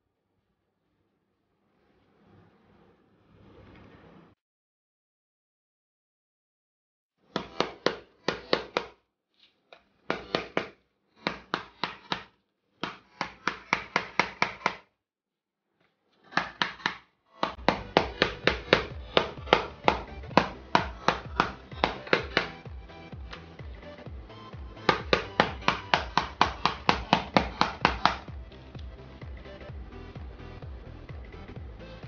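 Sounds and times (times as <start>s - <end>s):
mallet tapping on plastic casing: 24.8s - 28.3s.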